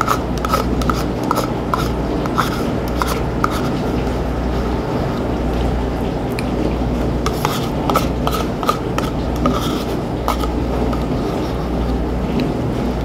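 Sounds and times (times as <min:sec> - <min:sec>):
cutlery scraping a dish: 0:00.0 - 0:03.8, 0:07.3 - 0:11.1.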